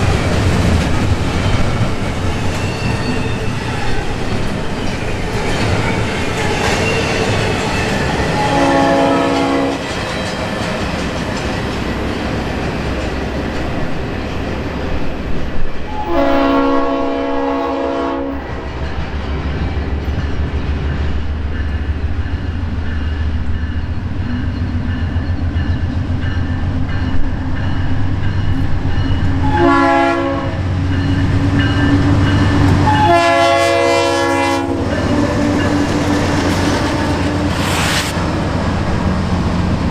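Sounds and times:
train rumble and wheel clatter: 0.0s - 39.9s
train horn blasts: 8.3s - 9.9s, 15.9s - 18.6s, 29.4s - 30.7s, 32.4s - 35.7s.

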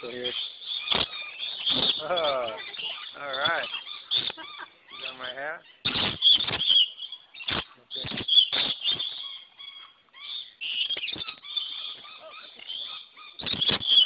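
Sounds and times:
lorikeets screeching and chattering: 0.0s - 14.0s
knocks and rustles of wings: 5.9s - 9.2s, 13.4s - 14.0s.

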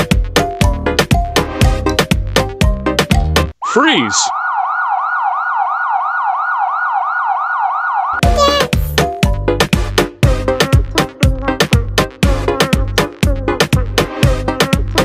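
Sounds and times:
person shouting: 3.6s - 4.3s, 8.2s - 9.0s
siren sound effect: 3.6s - 8.4s
dance music: 8.2s - 9.1s.

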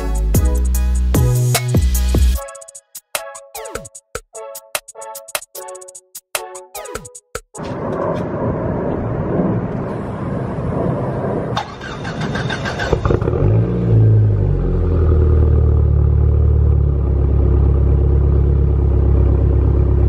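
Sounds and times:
car engine revving and idling: 11.5s - 20.0s.

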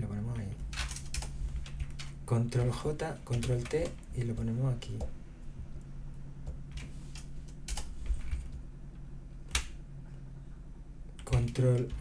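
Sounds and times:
steady low hum: 0.0s - 12.0s
keyboard keys clicking: 0.6s - 5.1s, 6.4s - 8.6s, 11.2s - 12.0s.

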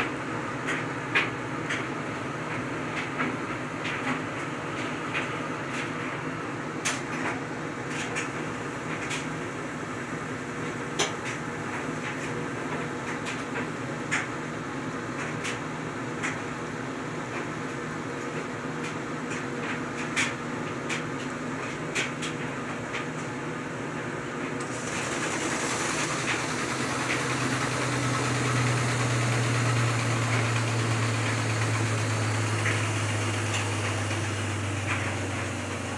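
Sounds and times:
washing machine humming: 0.0s - 35.9s
deep steady hum: 24.6s - 35.9s.

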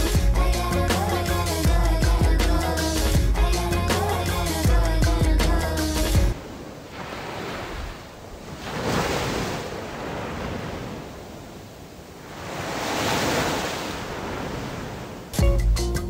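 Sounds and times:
waves washing onto sandy beach: 6.3s - 15.4s.

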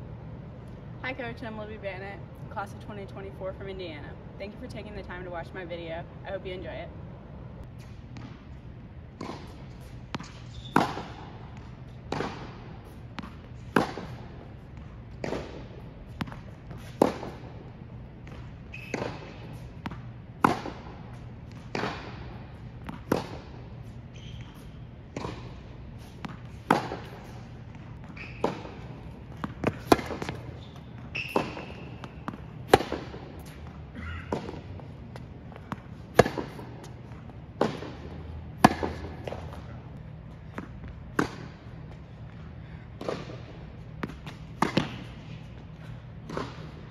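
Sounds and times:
tennis ball hit and bouncing: 9.1s - 39.8s, 40.5s - 42.0s, 43.0s - 46.9s.

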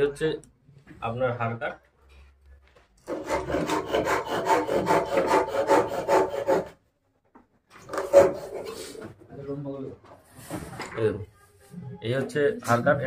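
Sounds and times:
rasping on wood: 3.1s - 6.8s, 7.9s - 9.0s.

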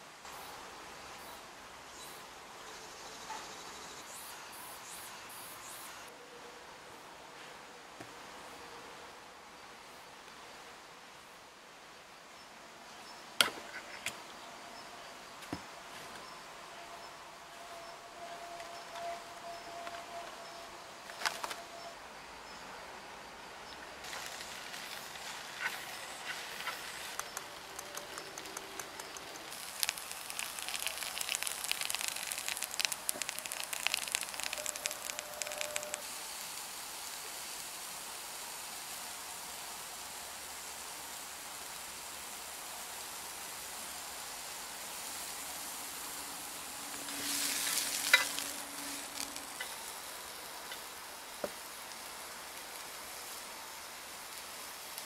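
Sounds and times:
crackling and spitting: 24.1s - 37.2s, 46.9s - 50.9s
food sizzling on a grill pan: 29.5s - 43.6s, 44.3s - 50.3s.

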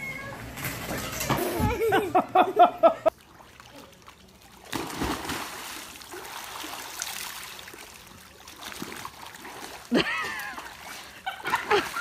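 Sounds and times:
water splashing and trickling: 3.1s - 12.0s.

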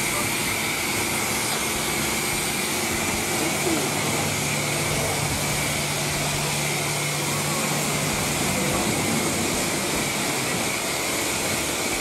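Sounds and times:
high-pressure water spraying: 0.0s - 12.0s
pump humming: 0.0s - 12.0s.

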